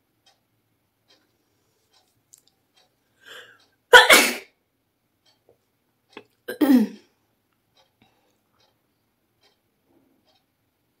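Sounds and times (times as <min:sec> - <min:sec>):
short breath in: 0:03.2 - 0:03.6
woman sneezing: 0:04.0 - 0:04.4.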